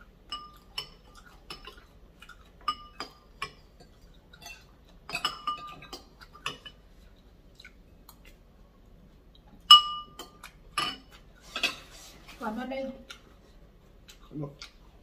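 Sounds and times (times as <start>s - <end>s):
cutlery clinking against a bowl: 0.3s - 6.8s, 9.6s - 11.9s.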